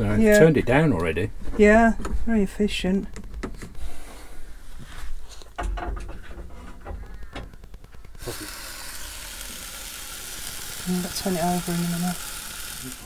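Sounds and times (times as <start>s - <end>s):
bacon sizzling in a pan: 8.1s - 13.0s.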